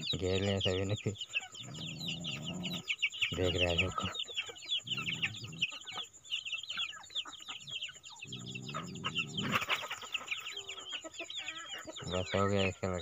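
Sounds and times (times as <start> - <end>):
chicks peeping: 0.0 - 13.0
hens clucking: 0.0 - 13.0.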